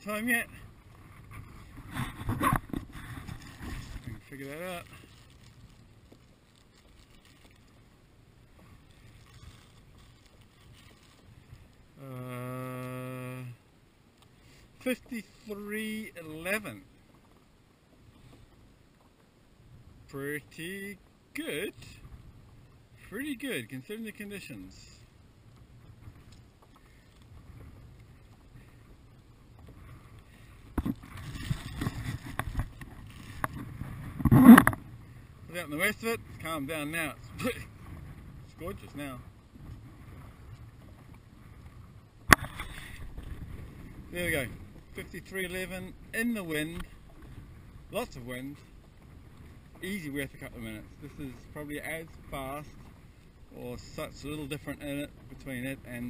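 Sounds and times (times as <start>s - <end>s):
faint wind: 0.0s - 56.0s
water noise around kayak: 0.0s - 56.0s
sharp knocks and splashing: 42.2s - 42.9s.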